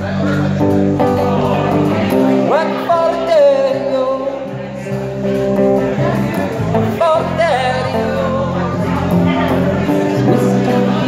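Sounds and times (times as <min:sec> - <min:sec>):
guitar playing: 0:00.0 - 0:11.0
man singing into a microphone: 0:00.0 - 0:11.0.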